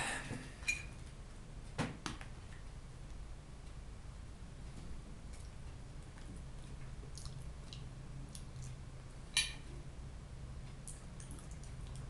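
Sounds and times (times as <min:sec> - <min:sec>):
steady low hum: 0:00.0 - 0:12.0
person chewing food: 0:05.3 - 0:08.9, 0:10.8 - 0:12.0.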